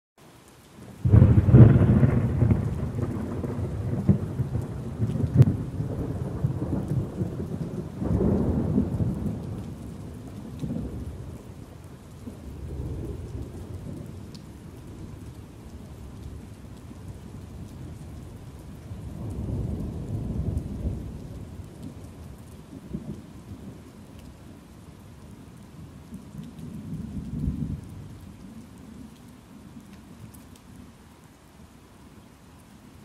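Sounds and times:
steady rain: 0:00.2 - 0:33.0
thunder clap and rumble: 0:01.0 - 0:11.5, 0:18.8 - 0:23.8.

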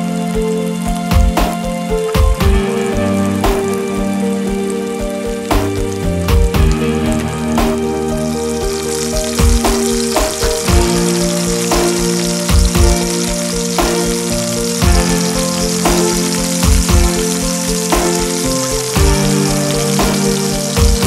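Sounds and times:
background music with soft beat: 0:00.0 - 0:21.0
chicken sizzling in a wok: 0:06.7 - 0:21.0.

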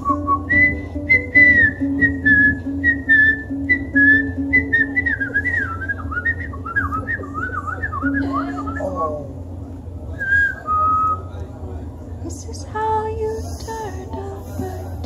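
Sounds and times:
ukulele strumming: 0:00.0 - 0:05.8
person whistling a tune: 0:00.0 - 0:09.2, 0:10.2 - 0:11.2.

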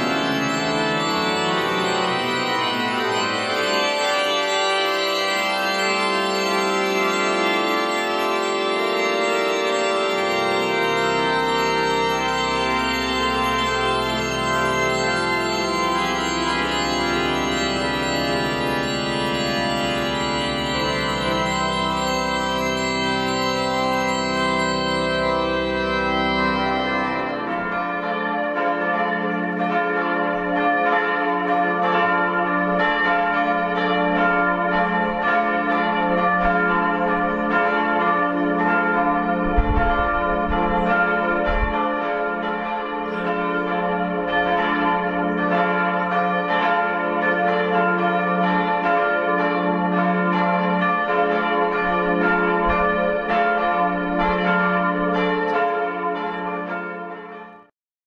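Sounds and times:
church bells pealing: 0:00.0 - 0:57.7
low thumps: 0:39.4 - 0:41.8.

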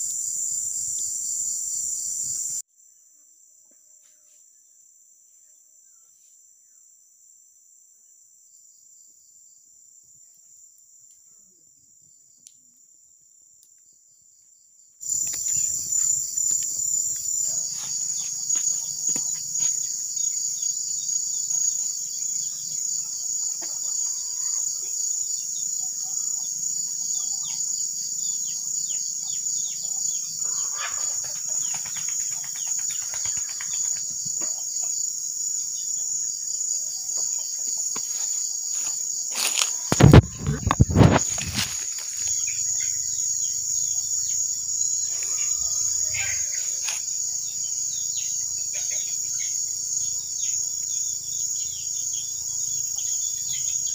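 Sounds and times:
insects trilling: 0:00.0 - 0:02.6, 0:13.6 - 0:53.9.

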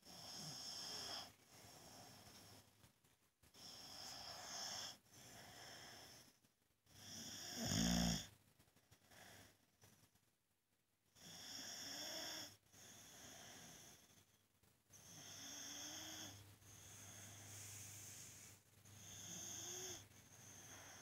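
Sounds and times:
dog snoring: 0:00.0 - 0:02.4, 0:03.5 - 0:08.3, 0:11.2 - 0:14.3, 0:14.9 - 0:21.0.

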